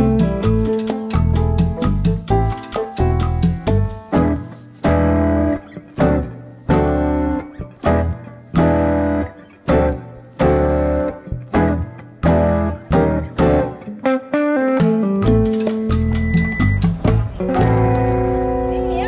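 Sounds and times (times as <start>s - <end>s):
bass line: 0.0s - 13.8s, 14.8s - 19.0s
plucked guitar chords: 0.0s - 19.0s.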